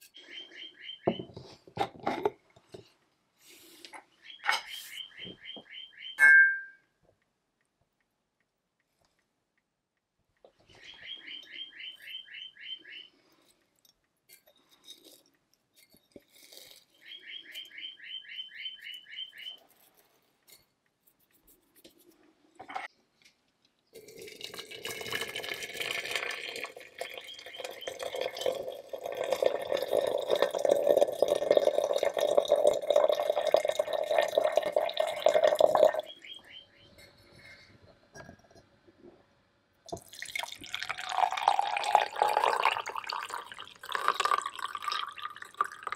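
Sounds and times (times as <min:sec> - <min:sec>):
small bird chirping trills: 0:00.0 - 0:01.3, 0:04.1 - 0:06.2, 0:10.6 - 0:13.2, 0:16.9 - 0:19.8, 0:26.9 - 0:28.7, 0:35.8 - 0:37.6
hot water poured into teapot: 0:24.0 - 0:36.0, 0:39.9 - 0:45.9.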